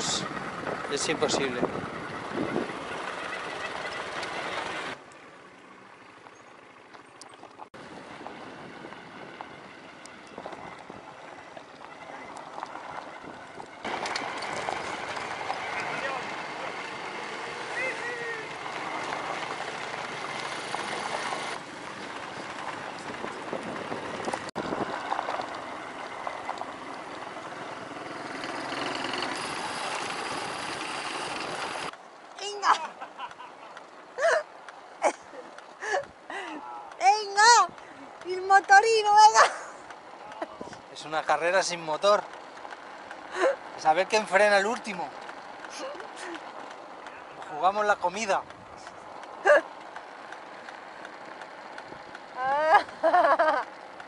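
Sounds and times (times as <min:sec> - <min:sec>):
motorcycle engine and road noise: 0:00.0 - 0:54.0
tyre noise on gravel: 0:10.3 - 0:27.6.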